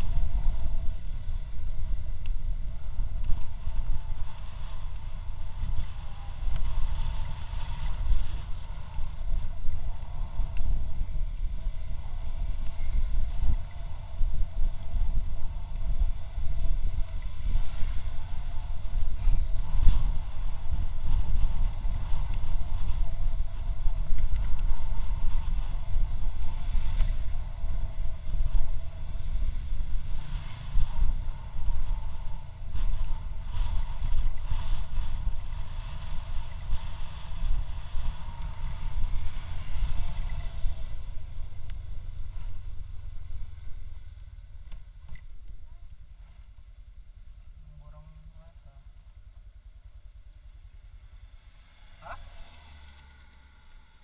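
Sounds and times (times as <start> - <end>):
motorcycle engine droning: 0.0 - 54.0
wind buffeting microphone: 0.0 - 54.0.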